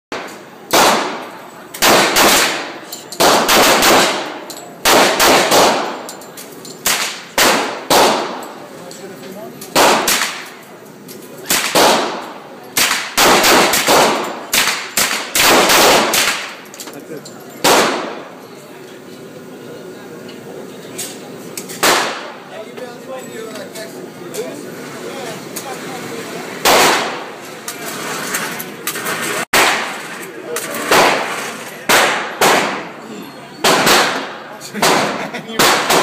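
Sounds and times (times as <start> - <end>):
rifle shots echoing indoors: 0.1 - 6.1, 6.8 - 8.5, 9.7 - 10.6, 11.5 - 16.6, 17.6 - 18.2, 21.8 - 22.4, 26.6 - 27.3, 29.6 - 30.1, 30.9 - 32.9, 33.6 - 36.0.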